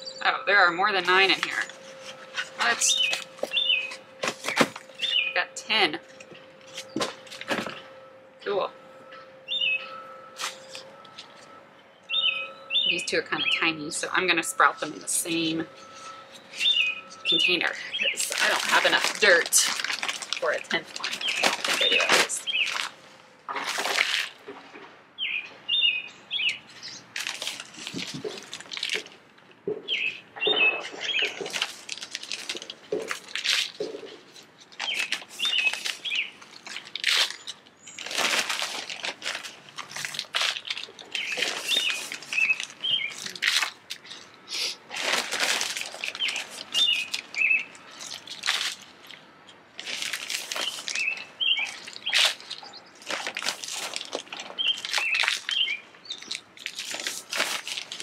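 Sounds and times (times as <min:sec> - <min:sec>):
bird chirping: 0:00.0 - 0:19.4, 0:20.4 - 0:22.8, 0:25.2 - 0:27.2, 0:29.7 - 0:31.5, 0:33.8 - 0:38.2, 0:40.6 - 0:43.4, 0:46.0 - 0:48.4, 0:50.4 - 0:53.1, 0:54.5 - 0:56.5.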